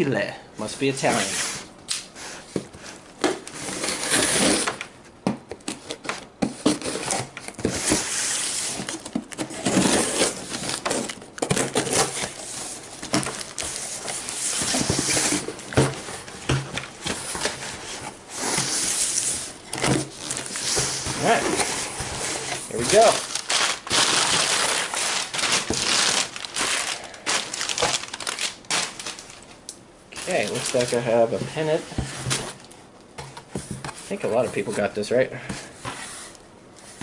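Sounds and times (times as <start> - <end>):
cardboard scraping: 1.0 - 4.9, 5.6 - 29.3, 30.2 - 32.6
tape ripping: 22.3 - 29.4.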